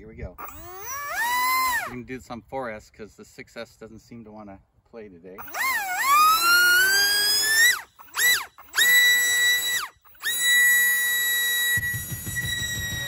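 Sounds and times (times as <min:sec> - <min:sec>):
electric motor whining: 0:00.4 - 0:02.0, 0:05.4 - 0:13.0.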